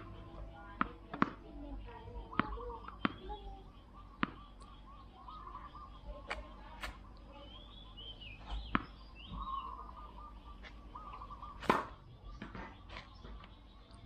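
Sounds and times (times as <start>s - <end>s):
racket striking ball: 0.0s - 1.6s, 2.4s - 3.3s, 4.2s - 4.4s, 8.6s - 9.0s, 11.6s - 12.7s
tennis ball bouncing on concrete: 0.0s - 3.6s, 4.2s - 4.7s, 6.3s - 7.0s, 8.4s - 9.5s, 11.6s - 13.5s
birds chirping: 0.0s - 14.0s.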